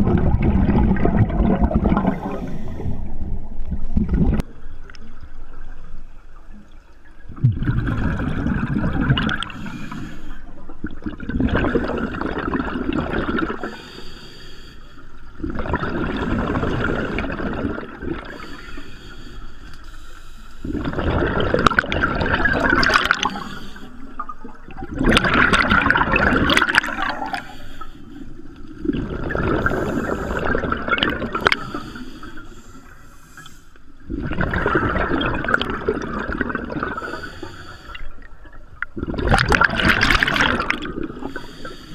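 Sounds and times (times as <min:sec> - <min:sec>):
diver exhaust bubbles gurgling: 0:00.0 - 0:04.5, 0:07.3 - 0:09.7, 0:10.8 - 0:13.8, 0:15.4 - 0:18.4, 0:20.6 - 0:23.5, 0:24.4 - 0:27.6, 0:28.8 - 0:31.9, 0:34.1 - 0:37.3, 0:38.8 - 0:41.4.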